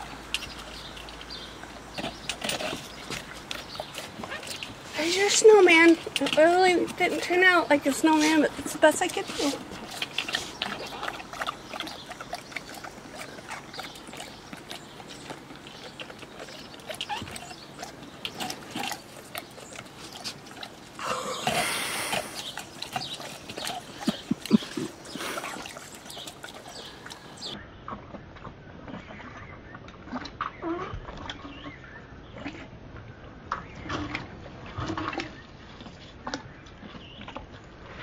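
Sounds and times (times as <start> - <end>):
dogs licking: 0.0 - 27.6
loud slurping: 0.0 - 27.6.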